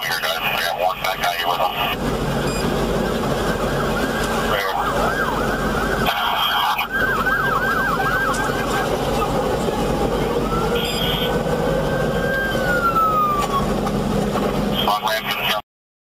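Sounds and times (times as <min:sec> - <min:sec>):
emergency siren: 0:00.0 - 0:15.0.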